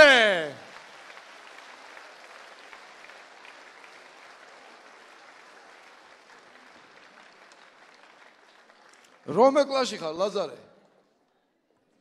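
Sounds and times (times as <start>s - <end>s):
crowd applause: 0.0s - 9.5s.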